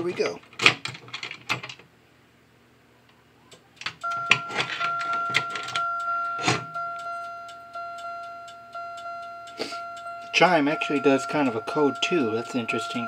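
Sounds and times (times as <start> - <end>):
sharp clicks: 3.5 - 7.1
two-note electronic alarm chime: 4.0 - 13.0.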